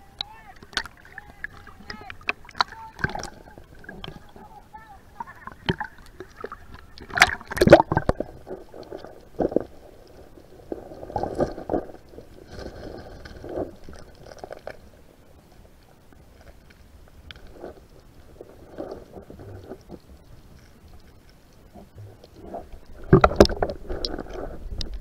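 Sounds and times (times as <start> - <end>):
muffled underwater water sloshing: 0.0 - 25.0
knocks and splashes: 0.6 - 4.3, 5.4 - 8.6, 23.0 - 24.2.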